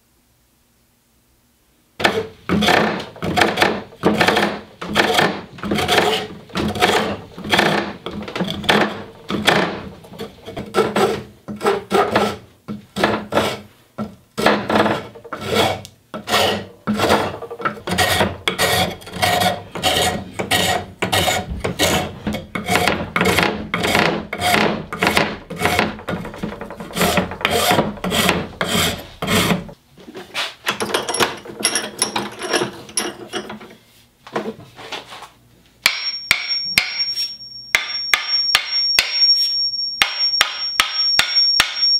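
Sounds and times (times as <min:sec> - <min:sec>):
rasp filing wood: 0:02.0 - 0:13.7, 0:14.4 - 0:29.8.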